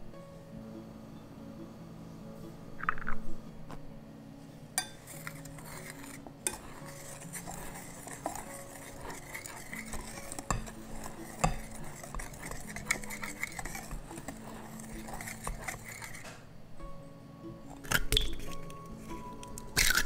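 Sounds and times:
whisk clicking against bowl: 0:04.8 - 0:16.4
whisk scraping dry mix in bowl: 0:04.8 - 0:16.4.

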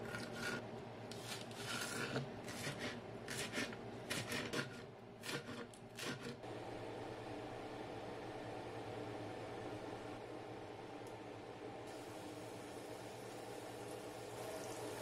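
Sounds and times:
knife chopping on wooden board: 0:01.8 - 0:06.4.

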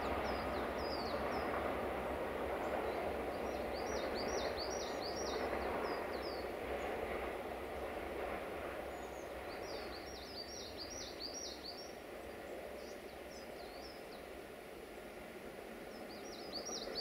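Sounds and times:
outdoor background noise: 0:00.0 - 0:17.0
small songbirds chirping: 0:00.2 - 0:01.6, 0:02.6 - 0:06.5, 0:08.9 - 0:14.3, 0:15.8 - 0:17.0.

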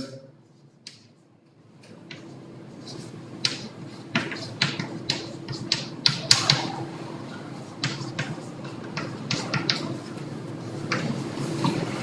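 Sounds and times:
chalk writing on blackboard: 0:02.1 - 0:06.8, 0:07.4 - 0:11.4.

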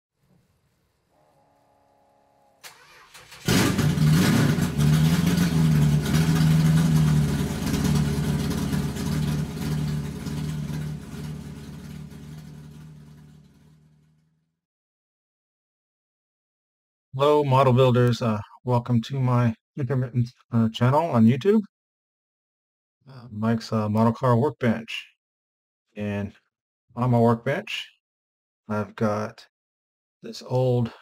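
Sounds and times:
car engine starting and running: 0:02.6 - 0:14.4.

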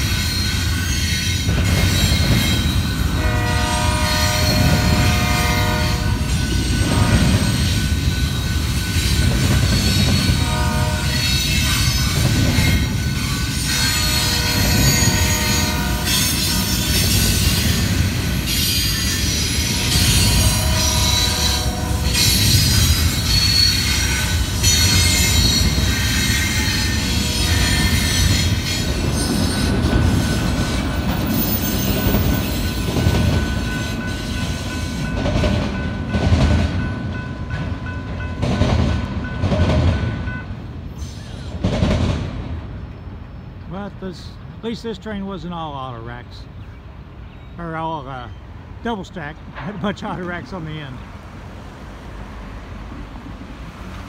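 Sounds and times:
train wheel clacks on track: 0:00.0 - 0:03.2, 0:06.1 - 0:40.6, 0:41.6 - 0:42.6
train wheels squealing: 0:00.0 - 0:03.2, 0:06.3 - 0:10.4, 0:11.0 - 0:35.2, 0:40.9 - 0:41.6.

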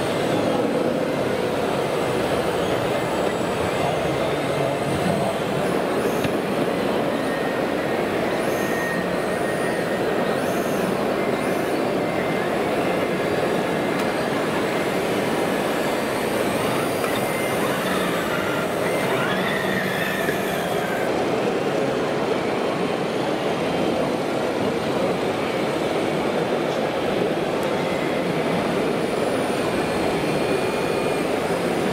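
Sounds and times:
high electric motor whines: 0:00.0 - 0:21.1, 0:27.7 - 0:31.9
busy hall background noise: 0:00.0 - 0:31.9.

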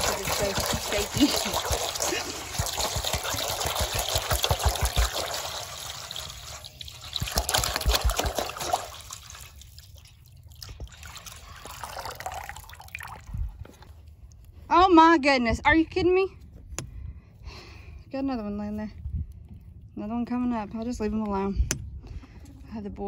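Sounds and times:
water pouring into metal bowl: 0:00.0 - 0:13.4
water dripping and sloshing: 0:00.0 - 0:14.7.

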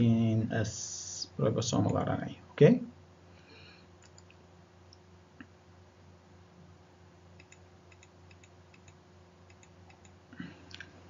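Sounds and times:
low electrical hum: 0:00.0 - 0:11.0
computer mouse clicks: 0:04.0 - 0:04.4, 0:07.4 - 0:10.9.

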